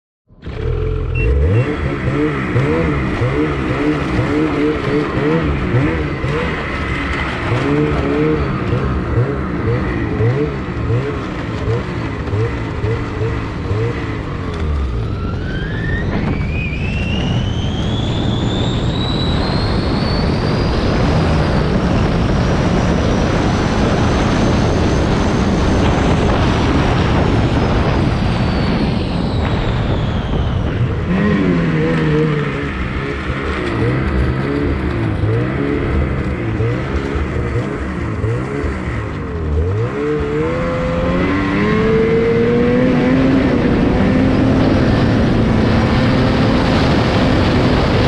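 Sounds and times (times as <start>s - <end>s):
snowmobile engine revving: 0.4s - 16.3s, 30.6s - 48.0s.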